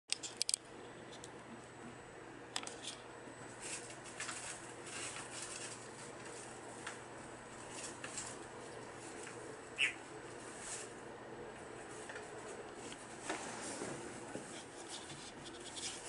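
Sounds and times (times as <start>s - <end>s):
parrots scratching and rustling: 2.7s - 16.0s.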